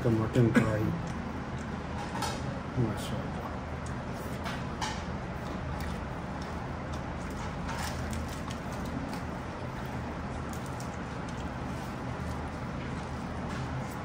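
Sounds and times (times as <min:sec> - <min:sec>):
low room hum: 0:00.0 - 0:14.0
person chewing food: 0:00.7 - 0:02.2, 0:03.3 - 0:14.0.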